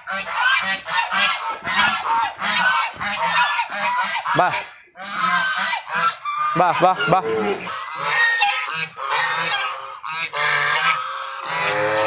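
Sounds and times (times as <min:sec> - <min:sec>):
geese honking: 0:00.0 - 0:12.0.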